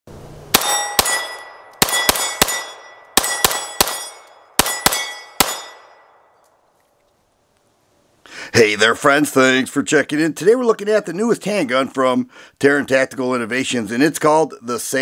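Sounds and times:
pistol shots: 0:00.5 - 0:06.2
metallic ring: 0:00.6 - 0:06.4.

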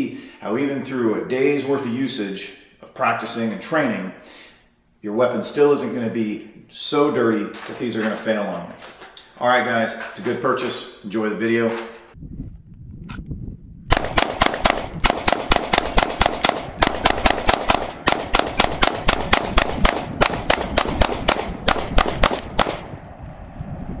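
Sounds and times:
rapid pistol shots: 0:13.9 - 0:23.0.

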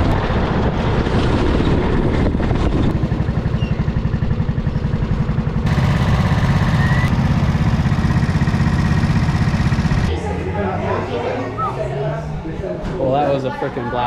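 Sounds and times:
go-kart engines idling: 0:02.9 - 0:11.7.

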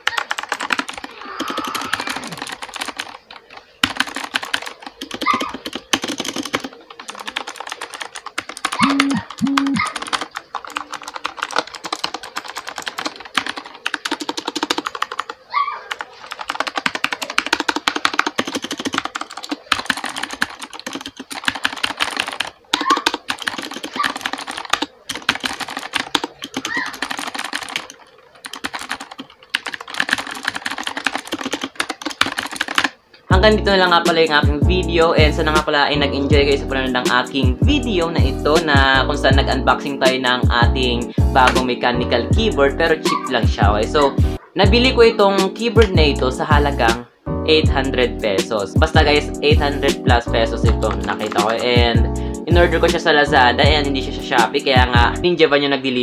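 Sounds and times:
fast mechanical keyboard typing: 0:00.0 - 0:33.0, 0:48.4 - 0:52.0.

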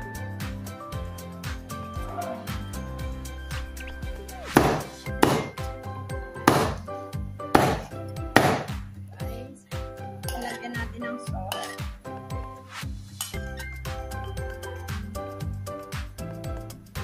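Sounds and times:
background music: 0:00.0 - 0:17.0
knife chopping on wooden board: 0:04.5 - 0:05.6, 0:06.5 - 0:06.9, 0:07.6 - 0:08.7.

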